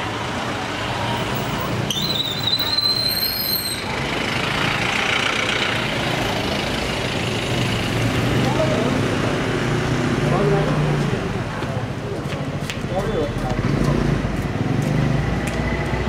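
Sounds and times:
high rising squeal: 1.9s - 4.0s
motorbikes passing: 3.7s - 16.0s.

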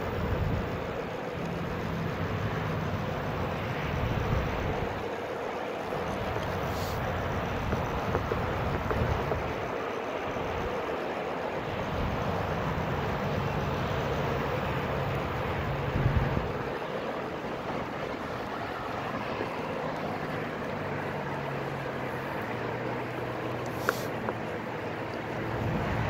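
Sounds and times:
wind rushing over microphone: 3.5s - 5.1s, 6.1s - 10.8s, 15.0s - 19.7s.

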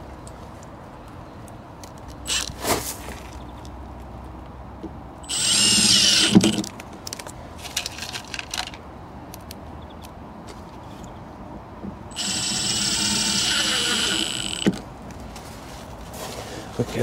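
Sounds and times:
impact driver driving a screw: 5.3s - 6.7s, 12.1s - 14.8s.

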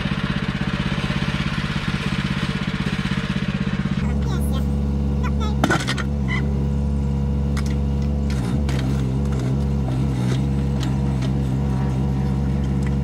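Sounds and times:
mini digger diesel engine: 0.0s - 13.0s.

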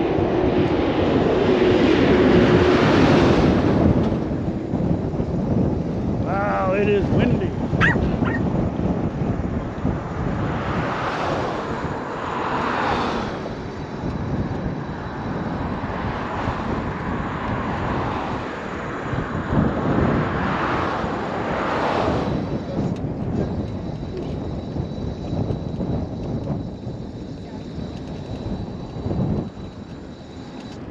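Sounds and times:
low traffic rumble: 0.0s - 30.9s
vehicles passing on highway: 0.0s - 30.9s.

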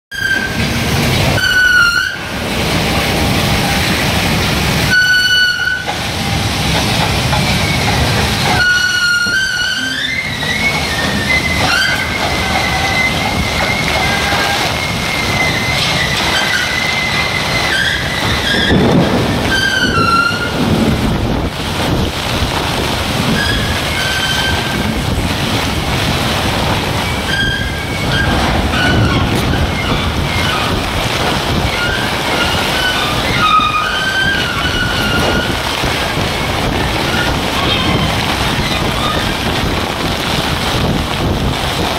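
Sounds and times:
metallic squeals from cranes: 0.1s - 2.3s, 4.9s - 6.1s, 7.4s - 20.7s, 23.3s - 24.9s, 27.0s - 30.9s, 31.6s - 35.7s
heavy rain: 0.1s - 41.9s
storm wind rushing: 0.2s - 41.9s.

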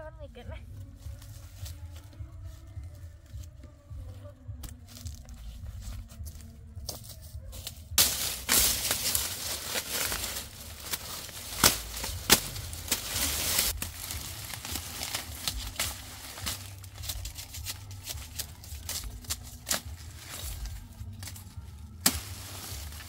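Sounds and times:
dry leaves rustling and crackling: 6.9s - 23.0s
stalks snapping: 8.0s - 23.0s.

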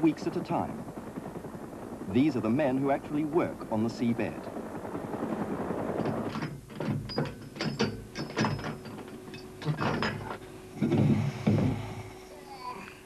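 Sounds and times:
faint steady hum: 0.0s - 13.0s
equipment clicking and clattering: 6.0s - 11.7s
dull thump: 10.8s - 12.0s.

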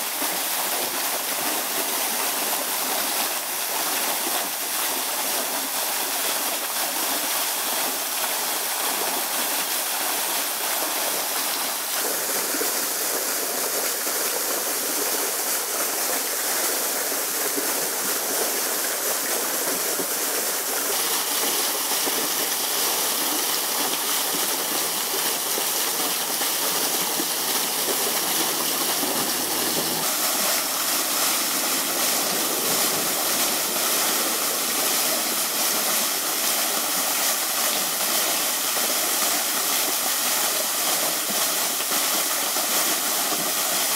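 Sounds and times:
steady rushing noise: 26.2s - 34.6s.

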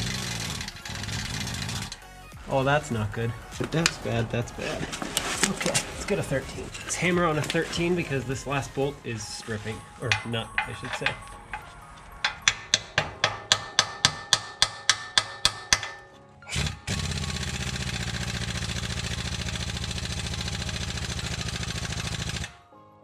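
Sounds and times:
pneumatic impact wrench hammering: 0.0s - 2.0s, 10.1s - 22.6s
hammer tapping metal socket: 10.1s - 16.2s.

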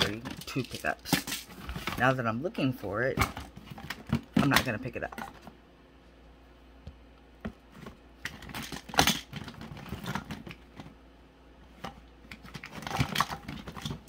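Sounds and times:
containers and packets clattering: 0.0s - 2.2s, 3.0s - 5.5s, 8.2s - 10.9s, 11.8s - 14.0s.

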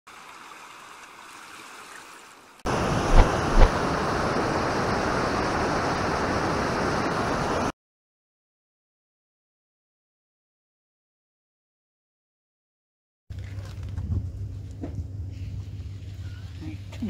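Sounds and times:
water rushing: 0.1s - 7.7s
lake water lapping: 0.3s - 6.3s
low thumps: 3.0s - 3.8s.

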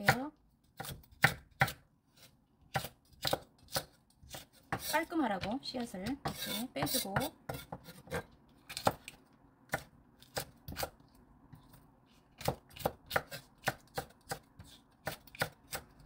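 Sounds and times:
knife chopping on wooden board: 0.0s - 11.0s, 12.4s - 16.0s.

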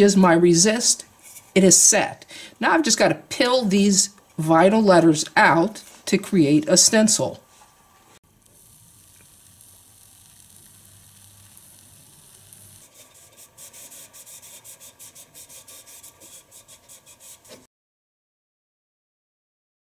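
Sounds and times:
swab sizzling on metal: 8.2s - 17.7s
cloth pad rubbing metal: 12.8s - 17.7s.

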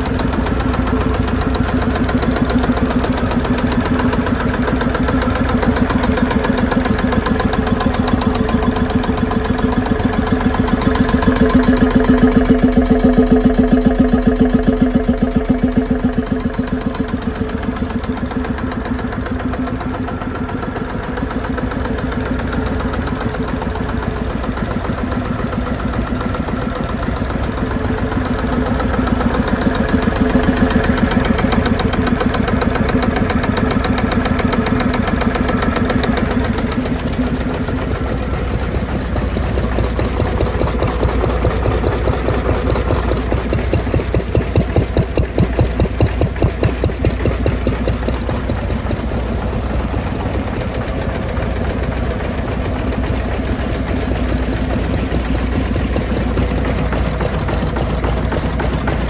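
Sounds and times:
engine firing beats: 0.0s - 59.0s
stationary engines running: 0.0s - 59.0s.

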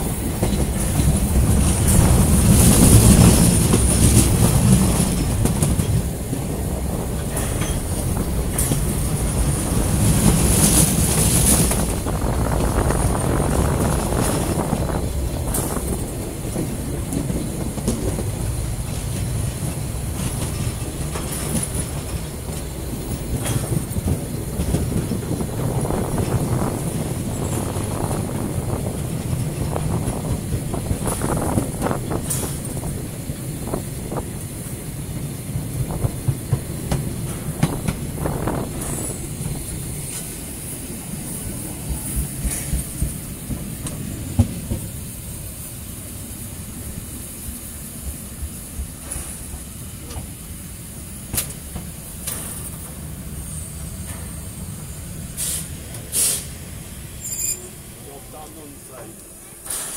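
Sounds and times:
high steam hiss: 0.0s - 59.9s
steam locomotive rumble: 0.0s - 59.9s
wheel clacks over rail joints: 0.1s - 34.8s, 51.3s - 53.0s.

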